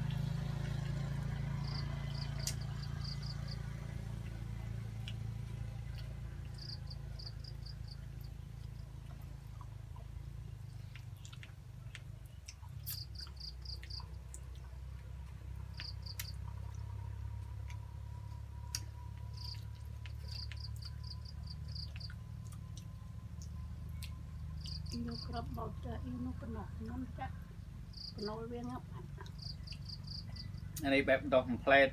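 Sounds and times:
insect chirping in rapid pulses: 1.0 - 9.2, 12.8 - 14.4, 15.6 - 17.3, 19.1 - 23.5, 24.2 - 25.7, 27.8 - 28.4, 29.3 - 30.8.

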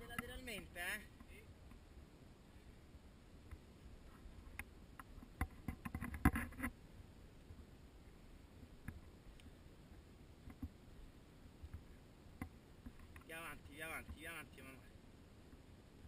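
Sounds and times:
outdoor background hiss: 0.0 - 16.0
camera handling knocks and scrapes: 5.4 - 6.7.

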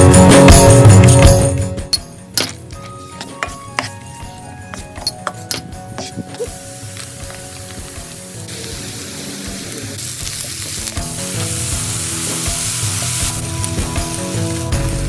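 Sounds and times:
background music: 0.0 - 15.0
spatula stirring in a pan: 2.4 - 8.4
vegetables sizzling in a frying pan: 6.3 - 15.0.

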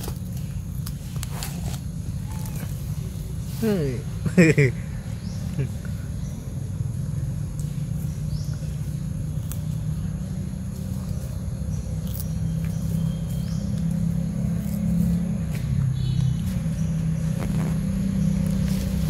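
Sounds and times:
low mechanical rumble: 0.0 - 19.0
faint high chirps: 11.1 - 14.2.

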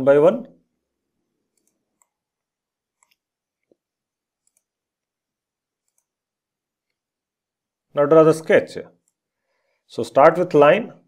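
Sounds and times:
faint computer mouse clicks: 1.5 - 2.2, 3.0 - 3.8, 4.4 - 4.7, 5.8 - 6.2.

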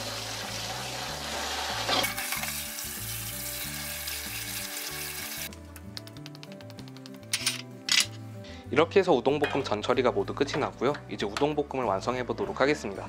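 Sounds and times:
tap water running: 0.0 - 5.5.

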